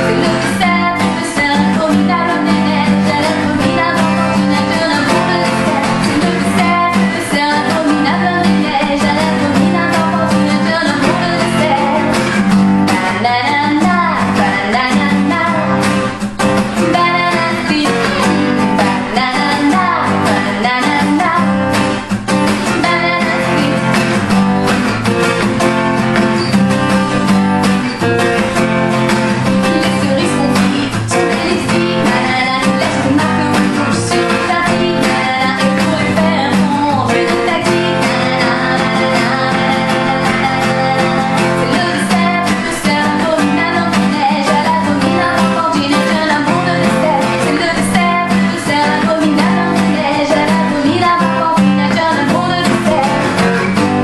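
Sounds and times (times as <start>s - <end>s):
acoustic guitar strumming: 0.0s - 54.0s
woman singing: 0.0s - 54.0s.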